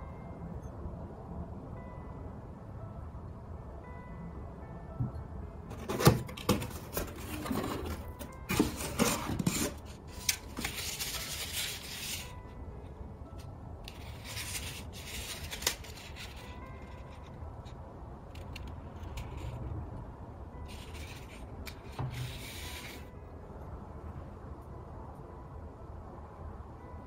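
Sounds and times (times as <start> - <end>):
cardboard box rustling: 5.7 - 12.3.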